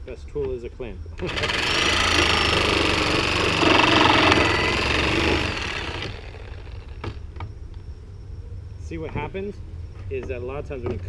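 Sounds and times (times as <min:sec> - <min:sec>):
reciprocating saw cutting nails: 0:01.2 - 0:07.2.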